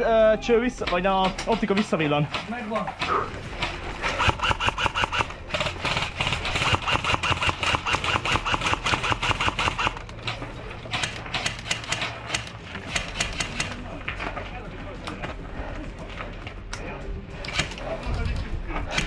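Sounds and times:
airsoft gun firing full auto: 4.1 - 10.0.

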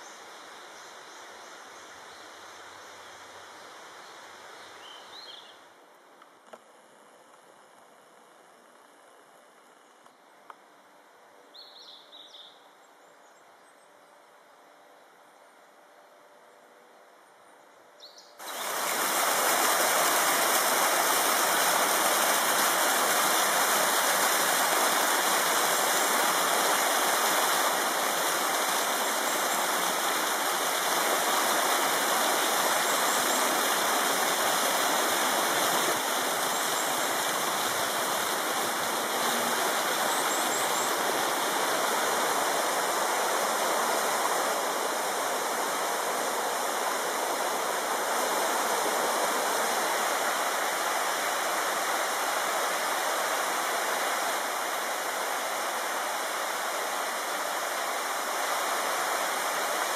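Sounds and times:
water rushing over rocks: 18.4 - 59.9.

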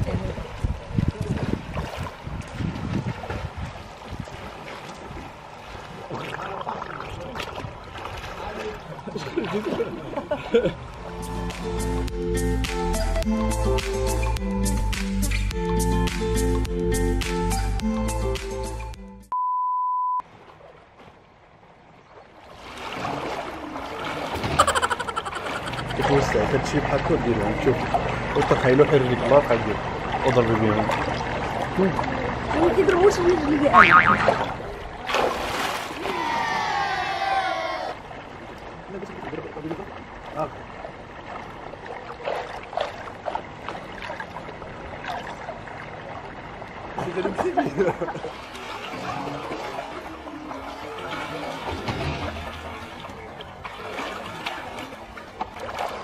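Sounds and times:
water splashing and lapping: 0.0 - 18.9, 20.2 - 56.0
high test-tone beep: 19.3 - 20.2.

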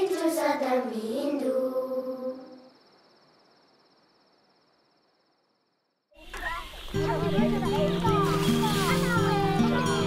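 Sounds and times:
person singing unaccompanied: 0.0 - 2.6
crickets chirring: 0.0 - 10.0.

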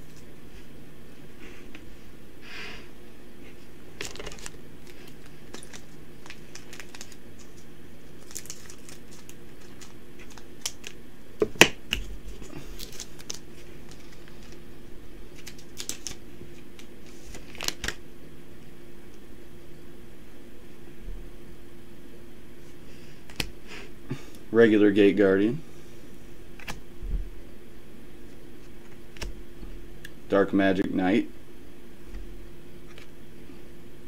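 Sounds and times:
trading cards clicking and rustling: 4.0 - 14.6, 15.3 - 18.0.

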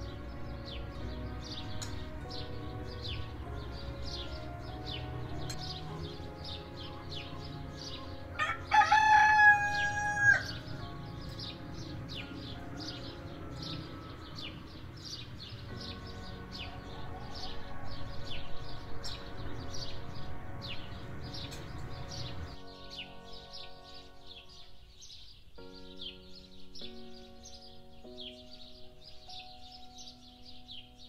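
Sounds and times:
small birds chirping: 0.0 - 31.0
rooster crowing: 8.4 - 10.7, 16.7 - 18.3.

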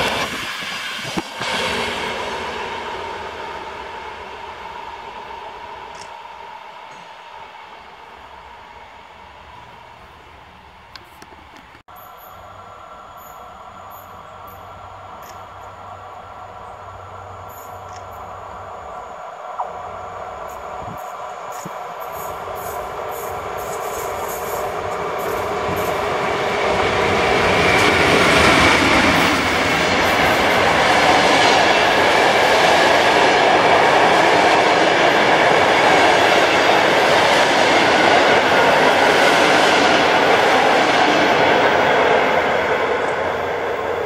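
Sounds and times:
train wheels on track: 0.0 - 12.3, 20.4 - 44.0.

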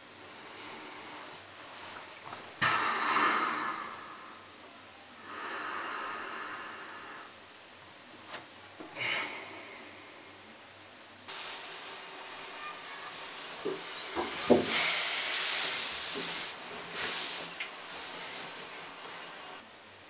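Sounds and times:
person exhaling heavily: 2.6 - 4.4, 8.9 - 10.3, 14.4 - 16.5.

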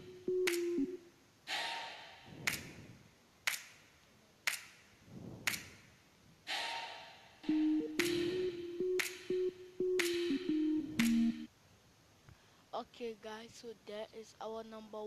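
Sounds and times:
sharp clap-like hits: 0.4 - 0.8, 1.5 - 7.0, 7.9 - 9.3, 10.0 - 10.4, 11.0 - 11.4
whooshes: 5.1 - 5.8
held synth tone: 7.4 - 11.5.

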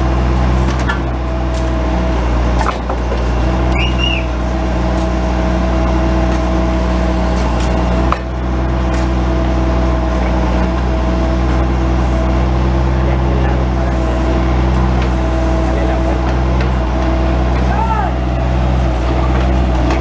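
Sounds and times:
diesel engine running: 0.0 - 20.0
hydraulic whine: 0.0 - 20.0
short high squeak: 3.7 - 4.3.

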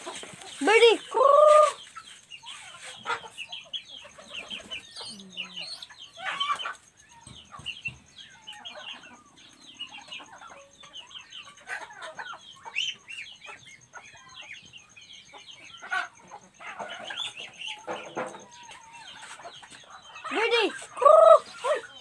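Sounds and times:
bird clucking: 0.0 - 22.0
birds chirping: 0.0 - 22.0.

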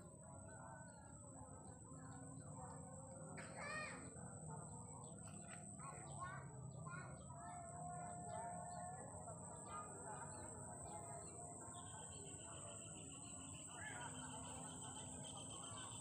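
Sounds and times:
small birds chirping: 4.6 - 16.0
thin steady whistling tone: 5.8 - 16.0.

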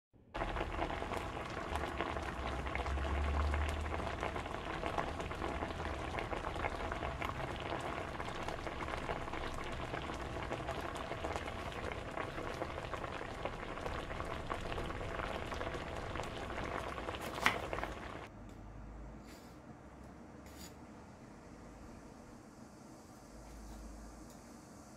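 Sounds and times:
hot oil sizzling and popping: 0.4 - 18.3.

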